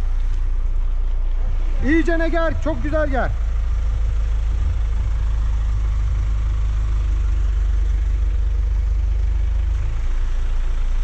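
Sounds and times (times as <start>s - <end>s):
truck engine droning: 0.0s - 11.0s.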